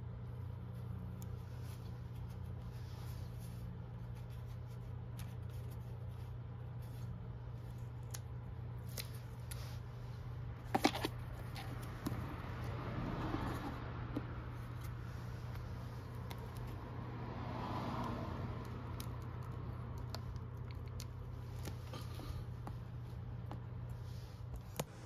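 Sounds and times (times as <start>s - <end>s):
steady low hum: 0.0s - 25.0s
soft rustling: 0.2s - 12.5s.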